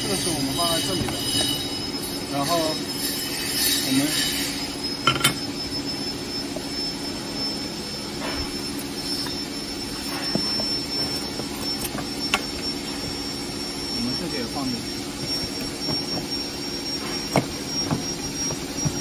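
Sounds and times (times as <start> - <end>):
machinery hum with high whine: 0.0 - 19.0.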